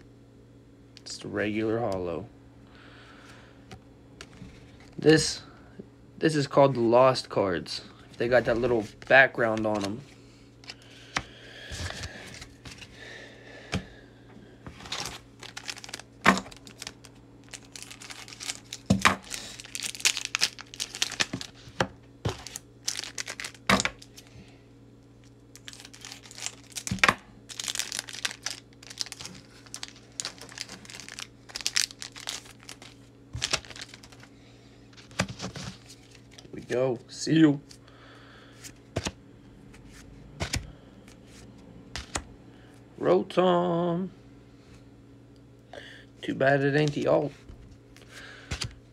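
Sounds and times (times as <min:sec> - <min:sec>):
cards being handled: 0:08.1 - 0:13.0, 0:14.6 - 0:24.3, 0:25.6 - 0:34.3, 0:38.6 - 0:42.3, 0:46.7 - 0:48.8
foil wrappers crinkling and tearing: 0:08.2 - 0:12.9, 0:14.7 - 0:24.4, 0:25.2 - 0:34.3, 0:34.9 - 0:36.5.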